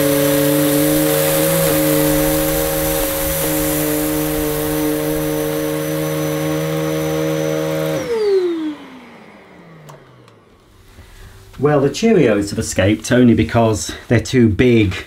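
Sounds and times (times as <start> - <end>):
vacuum motor winding down: 0.0 - 11.6
upright vacuum cleaner running: 0.0 - 12.9.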